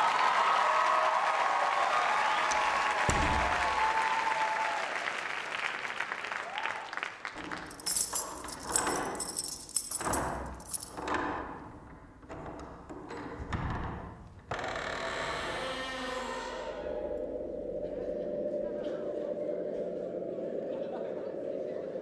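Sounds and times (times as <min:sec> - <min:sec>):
audience applause: 0:00.0 - 0:07.7.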